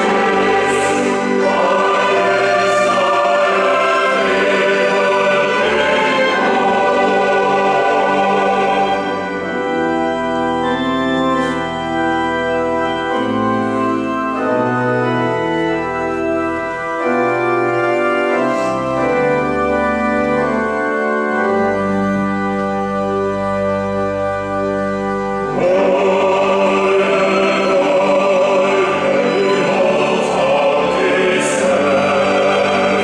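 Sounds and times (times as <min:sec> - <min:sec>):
choir singing held notes: 0:00.0 - 0:10.3, 0:25.5 - 0:33.0
organ playing sustained chords: 0:00.0 - 0:33.0.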